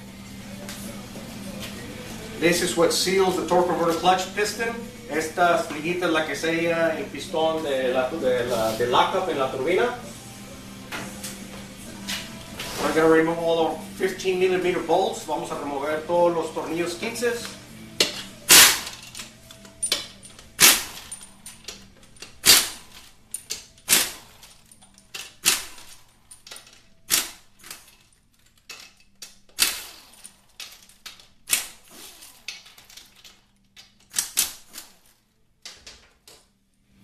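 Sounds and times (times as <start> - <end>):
tools and bolts clacking on metal: 17.2 - 35.0.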